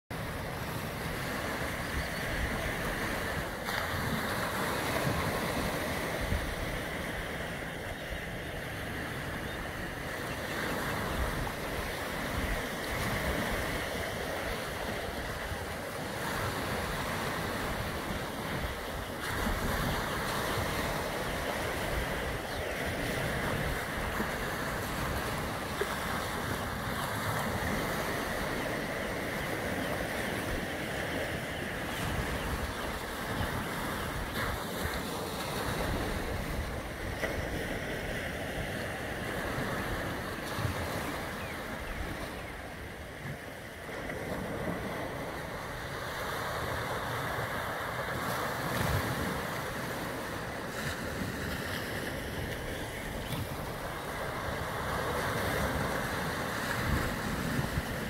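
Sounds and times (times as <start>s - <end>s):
small waves washing over rocks: 43.1s - 58.0s.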